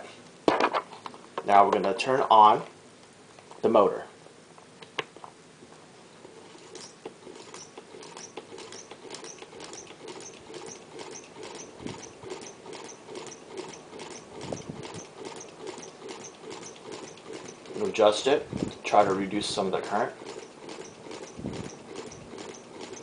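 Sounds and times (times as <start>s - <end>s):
motor clicking rhythmically: 6.5s - 23.0s
low motor hum: 6.8s - 19.1s.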